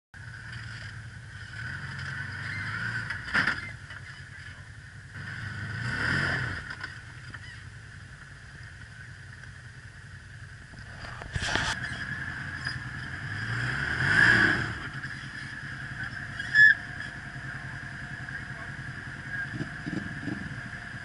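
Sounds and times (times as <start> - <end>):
engine revving: 0.3 - 3.8, 4.4 - 7.0, 10.7 - 21.0.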